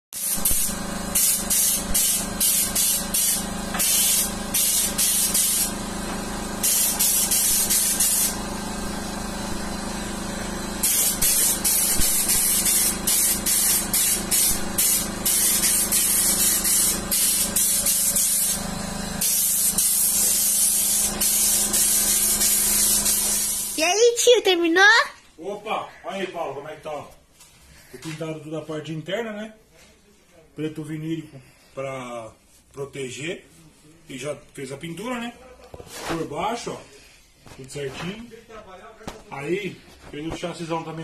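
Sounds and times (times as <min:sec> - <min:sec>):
paint spray gun hissing: 0:00.2 - 0:23.8.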